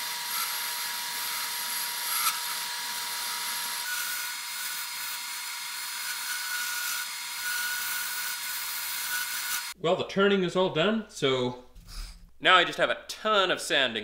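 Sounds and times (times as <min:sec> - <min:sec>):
lathe tool scraping wood: 0:00.0 - 0:09.8.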